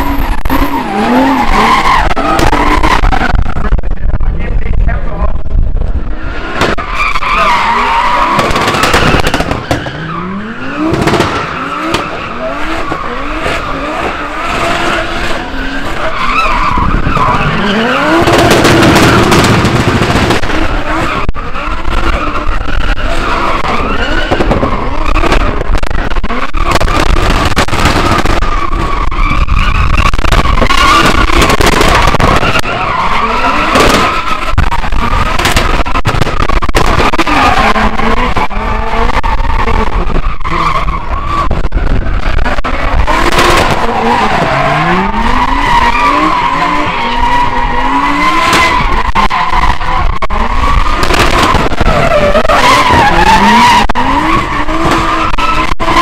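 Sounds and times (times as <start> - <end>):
car engines revving hard: 0.0 - 56.0
tyres squealing: 11.4 - 19.5.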